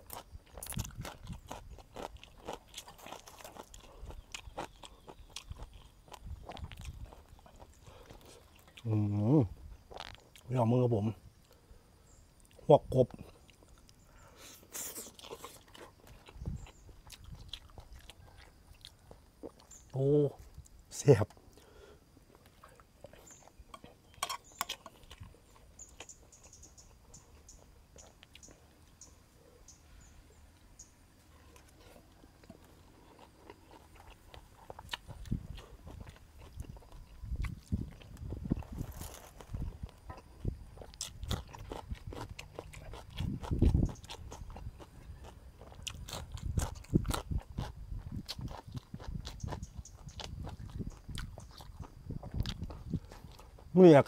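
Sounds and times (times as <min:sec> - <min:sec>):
chewing crunchy vegetables: 0:00.0 - 0:29.8, 0:30.5 - 0:54.0.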